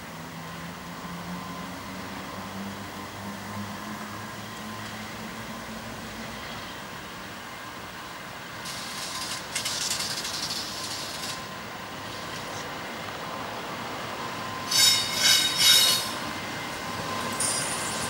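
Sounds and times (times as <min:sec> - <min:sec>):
locomotive wheel squeal: 0:14.6 - 0:16.3.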